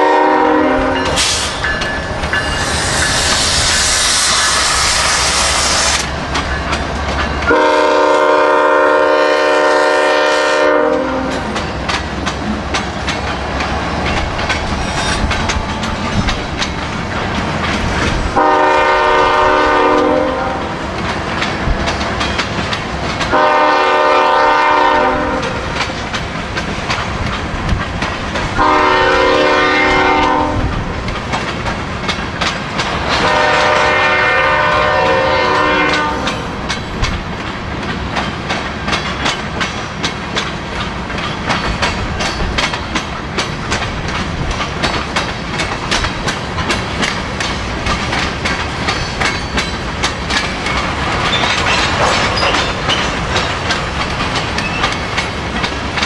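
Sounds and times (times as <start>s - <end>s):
locomotive air horn blasts: 0.0s - 1.5s, 7.5s - 11.5s, 18.4s - 20.8s, 23.3s - 25.8s, 28.6s - 30.7s, 33.2s - 36.6s
train wheels clicking on rails: 0.0s - 56.0s.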